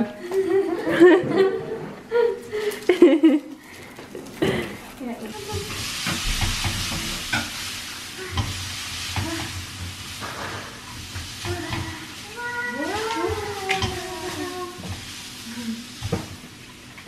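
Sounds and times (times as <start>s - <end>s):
noodles sizzling in a wok: 2.9s - 17.0s
spatula scraping a pan: 4.7s - 15.2s.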